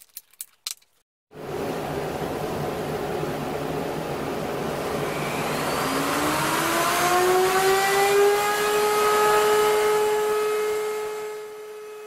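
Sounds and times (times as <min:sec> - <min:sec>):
wood router motor whine: 0:04.7 - 0:12.0.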